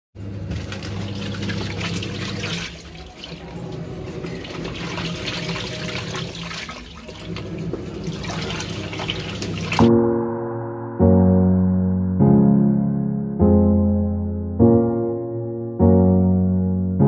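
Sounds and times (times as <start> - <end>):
washing machine sloshing water: 0.2 - 9.9.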